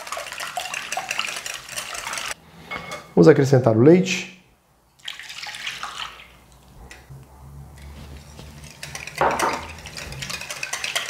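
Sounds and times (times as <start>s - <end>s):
milk pouring into a bowl: 0.0s - 2.4s, 5.0s - 6.6s
whisk clicking against glass bowl: 8.6s - 11.0s.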